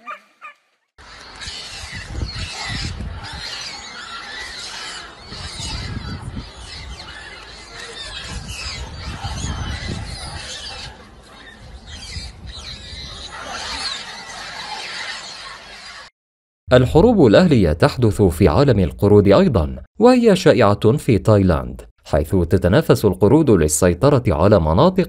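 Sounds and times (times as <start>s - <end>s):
din of many animals: 0.0s - 16.1s
monkeys squealing and screeching: 0.0s - 16.1s.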